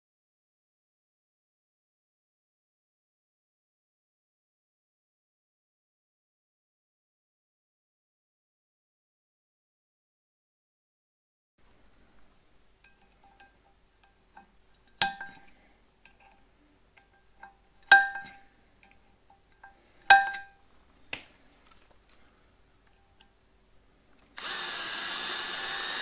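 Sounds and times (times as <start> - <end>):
metallic clinks: 12.8 - 20.6
light metal taps: 12.8 - 21.3.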